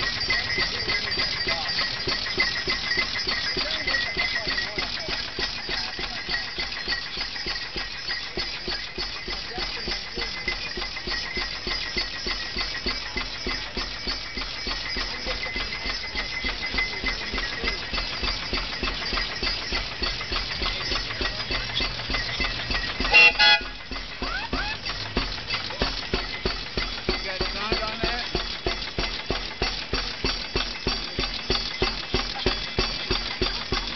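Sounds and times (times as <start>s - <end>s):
tractor engine clattering: 0.0s - 33.9s
horn toot: 23.1s - 23.8s.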